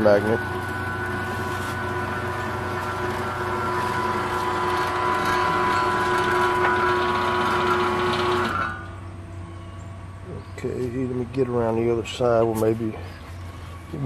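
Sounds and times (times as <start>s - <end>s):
gate motor whining: 0.0s - 10.2s.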